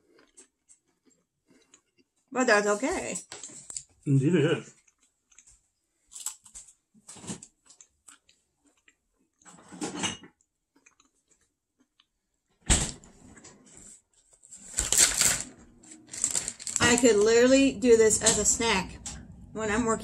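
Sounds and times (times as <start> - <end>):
crispbread crunching: 0.0 - 2.3, 4.7 - 12.3.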